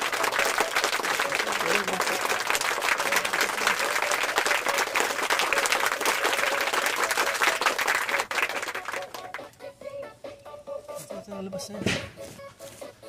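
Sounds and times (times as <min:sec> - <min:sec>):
tent fabric rustling: 0:12.1 - 0:13.0.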